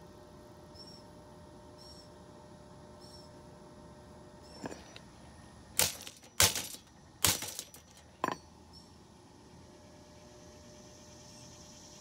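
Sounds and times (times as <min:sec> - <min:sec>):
faint steady hum: 0:00.0 - 0:12.0
sharp clinks and knocks: 0:05.8 - 0:08.5.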